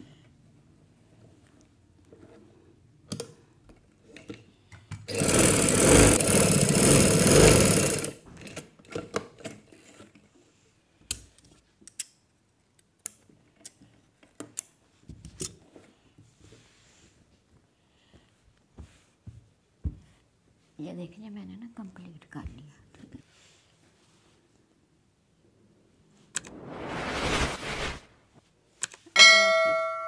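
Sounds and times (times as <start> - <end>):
sewing machine running: 5.1 - 8.2.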